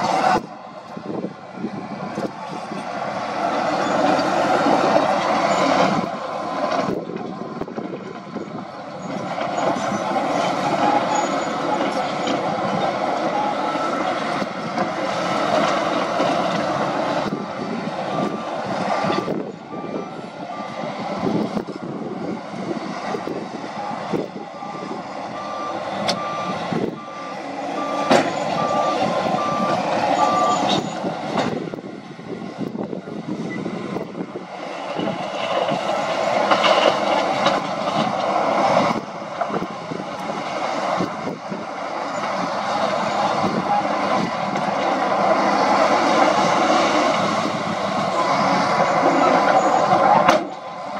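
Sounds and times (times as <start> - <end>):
heavy diesel machinery running: 0.0 - 50.9
reversing alarm beeping: 9.8 - 14.2, 16.0 - 21.4, 23.6 - 31.1.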